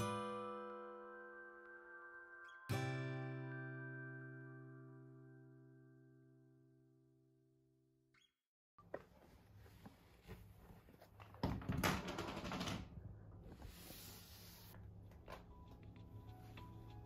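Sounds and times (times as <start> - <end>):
sleeves rustling: 8.8 - 11.3
soft background music: 14.1 - 17.0.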